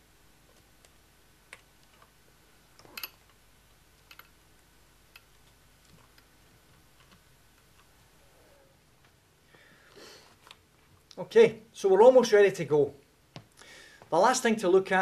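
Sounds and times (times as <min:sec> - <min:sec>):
small clicks and taps: 0:04.0 - 0:04.4, 0:05.1 - 0:07.9.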